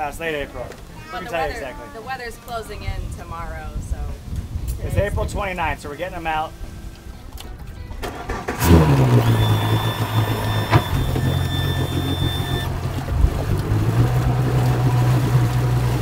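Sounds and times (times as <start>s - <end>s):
outboard motor running: 8.0s - 16.0s.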